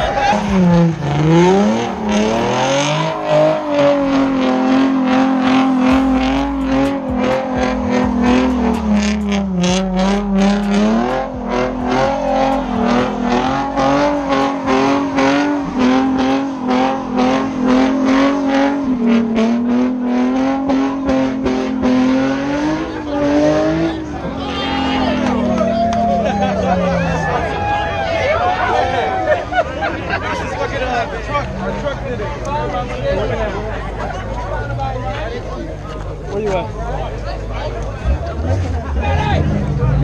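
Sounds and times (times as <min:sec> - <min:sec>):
car engine revving high: 0:00.0 - 0:28.6.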